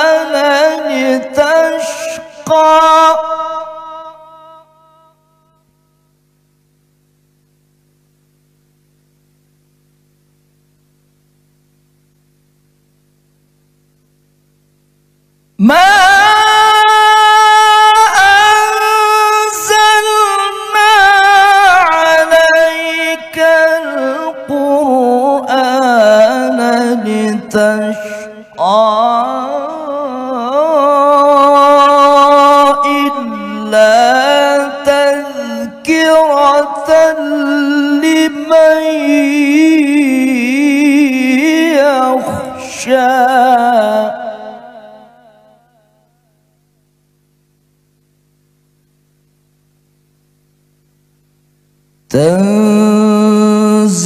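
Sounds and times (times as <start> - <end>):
man reciting melodically: 0.0 - 4.6, 15.6 - 45.2, 52.1 - 54.0
man chanting through a microphone: 0.0 - 5.1, 15.6 - 45.6, 52.1 - 54.0.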